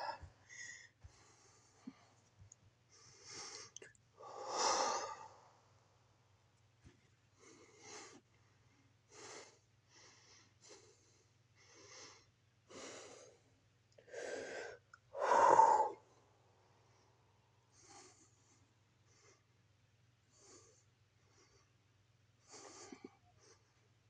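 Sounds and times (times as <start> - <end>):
person breathing hard: 0.0 - 2.2, 2.9 - 5.8, 7.4 - 13.4, 14.0 - 16.2.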